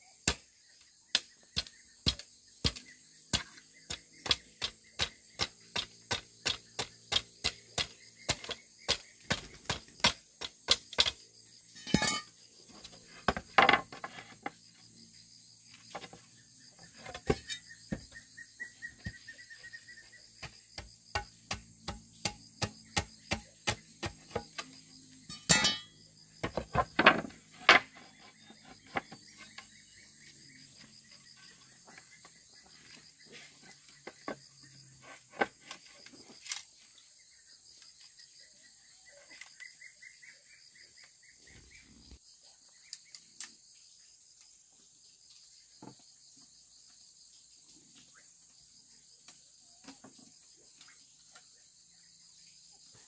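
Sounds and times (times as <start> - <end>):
insects chirring: 0.0 - 53.0
hand tool knocking on wood: 20.4 - 24.7.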